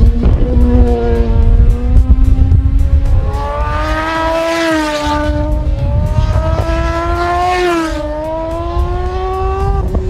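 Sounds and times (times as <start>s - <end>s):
racing motorcycle accelerating: 0.0s - 10.0s.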